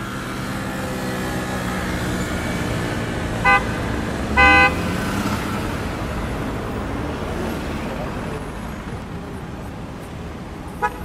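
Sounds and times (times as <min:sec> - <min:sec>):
traffic rumble: 0:00.0 - 0:11.0
car horn honking: 0:03.4 - 0:05.3, 0:10.8 - 0:11.0.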